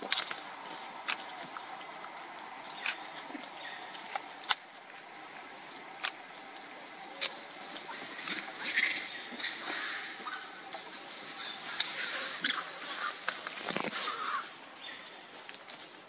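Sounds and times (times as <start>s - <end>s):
high-pitched insect drone: 5.6s - 15.8s.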